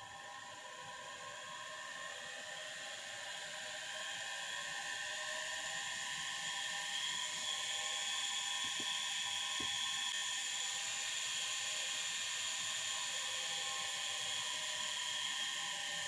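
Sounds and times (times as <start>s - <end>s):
electric motor whine: 5.2s - 10.1s.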